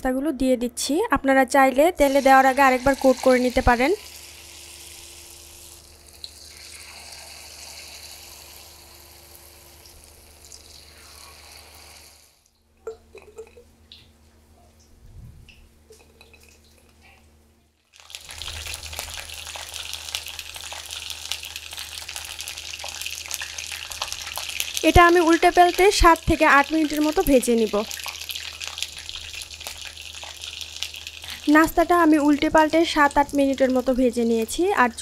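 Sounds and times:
food deep-frying in oil: 0:02.0 - 0:12.5, 0:17.8 - 0:35.0.

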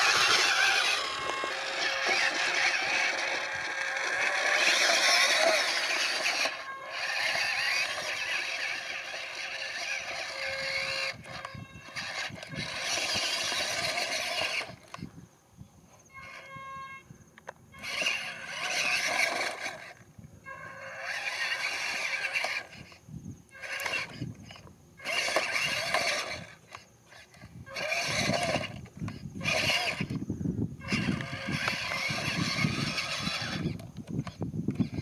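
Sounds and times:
electric motors whining: 0:00.0 - 0:15.2, 0:16.0 - 0:35.0
brief tone: 0:16.1 - 0:17.2.

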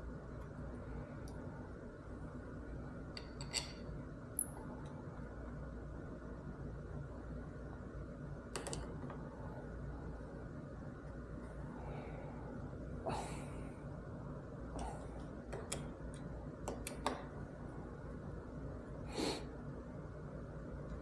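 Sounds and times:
steady low hum: 0:00.0 - 0:21.0
metal parts clicking and tapping: 0:03.1 - 0:04.6.

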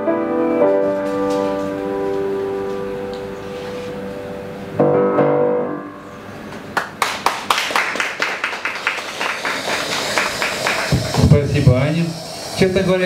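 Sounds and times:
grand piano chord ringing: 0:00.0 - 0:06.8
audience clapping: 0:06.5 - 0:11.3.

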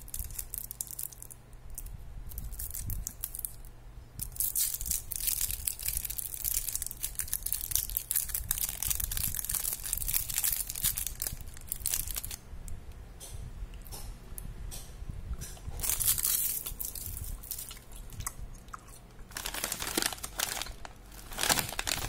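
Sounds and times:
plastic candy wrapper crinkling: 0:00.0 - 0:12.4, 0:15.8 - 0:18.3, 0:19.3 - 0:22.0.

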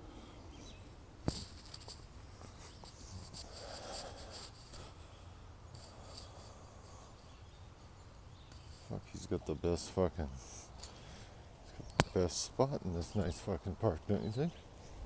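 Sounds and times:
microphone cord rubbing on shirt: 0:01.3 - 0:04.9, 0:05.7 - 0:07.9
sharp click: 0:11.9 - 0:12.2.

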